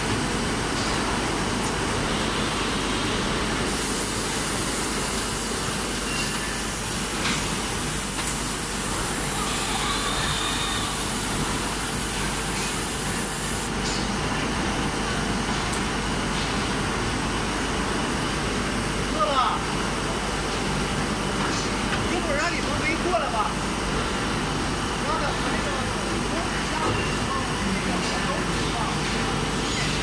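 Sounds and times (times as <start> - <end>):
high hiss: 3.7 - 13.7.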